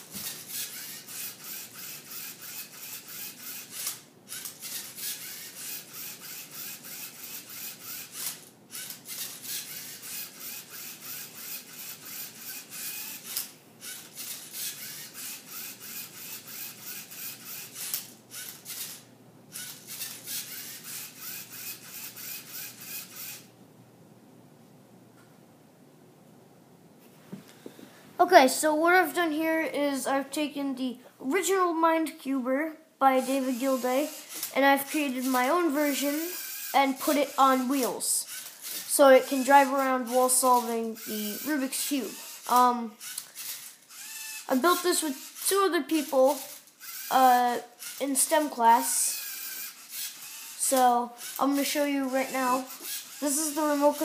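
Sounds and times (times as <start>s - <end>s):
robot motors whirring and scraping: 0.1s - 23.4s, 34.0s - 37.4s, 38.3s - 54.0s.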